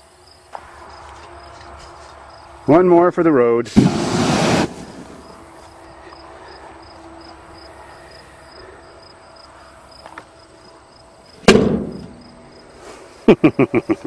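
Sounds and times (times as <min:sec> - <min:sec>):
crickets chirping: 0:00.0 - 0:02.9, 0:04.0 - 0:14.0
loud sharp bang: 0:03.7 - 0:05.3, 0:11.4 - 0:12.2.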